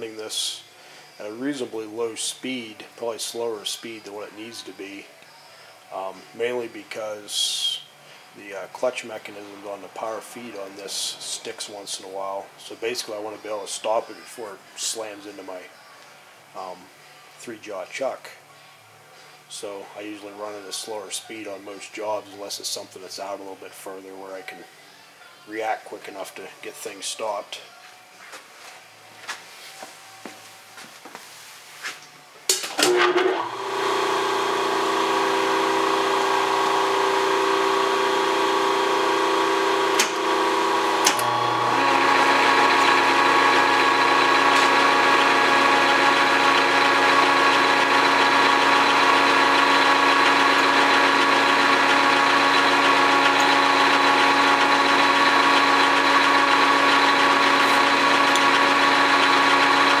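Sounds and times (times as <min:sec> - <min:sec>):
electric motor humming: 0:32.9 - 1:00.0
lathe running: 0:32.9 - 1:00.0.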